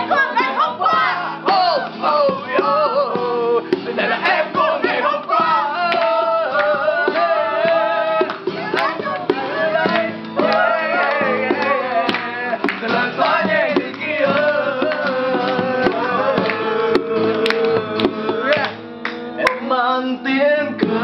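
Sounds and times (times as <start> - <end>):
acoustic guitar strumming: 0.0 - 21.0
group singing along: 0.0 - 21.0
hand slapping guitar body: 3.7 - 19.6.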